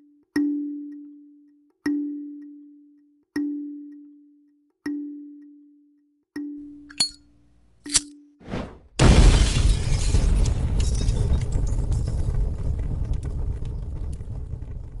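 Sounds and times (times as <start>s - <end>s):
loud crash with crackles: 9.0s - 15.0s.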